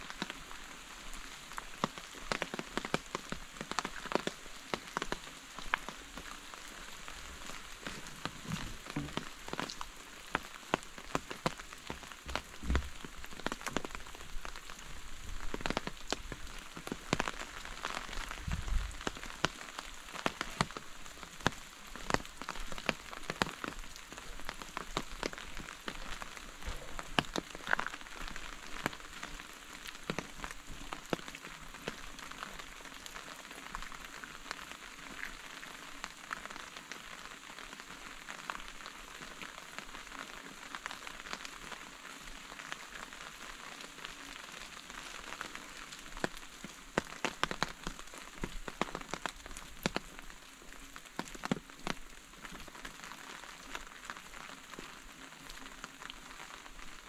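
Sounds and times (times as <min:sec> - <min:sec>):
steady rain falling: 0:00.0 - 0:57.0.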